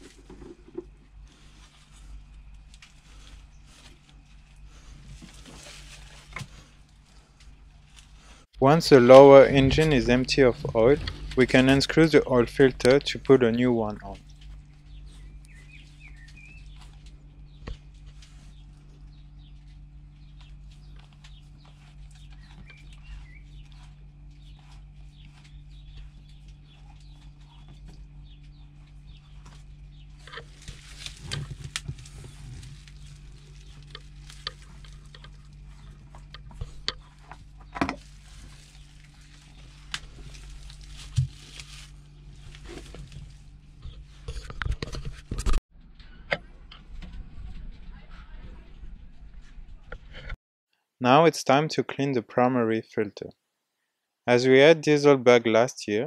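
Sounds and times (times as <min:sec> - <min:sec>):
oil filter clicking and scraping: 0:00.0 - 0:08.3, 0:19.6 - 0:45.6
steady low hum: 0:00.0 - 0:50.4
bird chirping: 0:14.2 - 0:17.6, 0:20.2 - 0:30.2.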